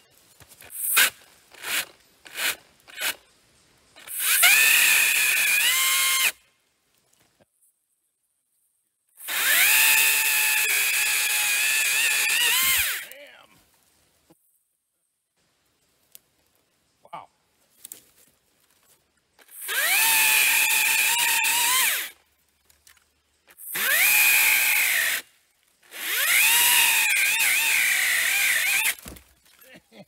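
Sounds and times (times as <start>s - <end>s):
pole saw motor and chain whine: 1.0s - 3.2s, 4.0s - 6.4s, 9.2s - 13.1s, 19.4s - 22.2s, 23.6s - 25.3s, 25.9s - 29.0s.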